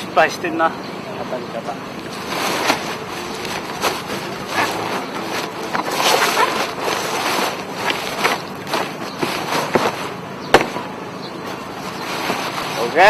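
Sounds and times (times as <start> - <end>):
knocks: 9.7 - 10.9.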